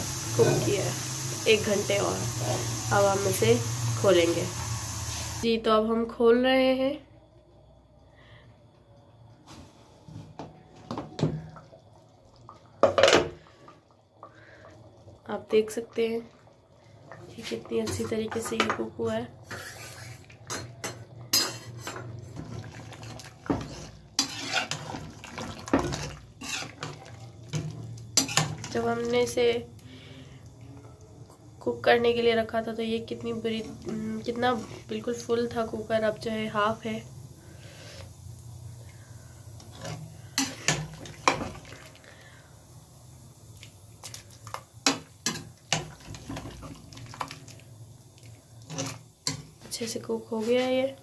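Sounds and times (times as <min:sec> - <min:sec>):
spoon clinking and scraping pot: 0:19.5 - 0:28.8
spoon scraping thick stew: 0:23.0 - 0:27.2.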